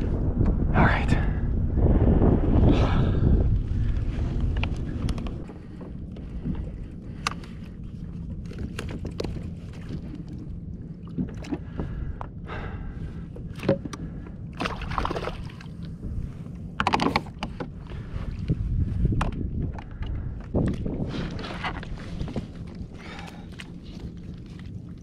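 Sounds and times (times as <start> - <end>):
water lapping against kayak: 2.0 - 25.0
water splashes: 14.5 - 16.0.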